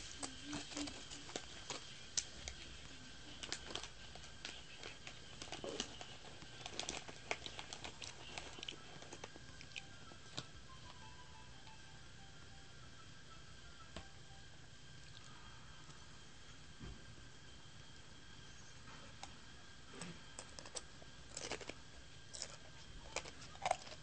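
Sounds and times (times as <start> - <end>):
crunching snack chips: 0.0 - 10.5, 20.3 - 24.0
faint high-pitched tone: 8.6 - 19.1.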